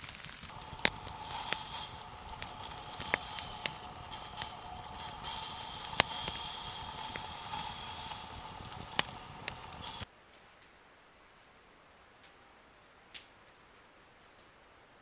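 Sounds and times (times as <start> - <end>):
campfire crackling and popping: 0.0 - 10.1.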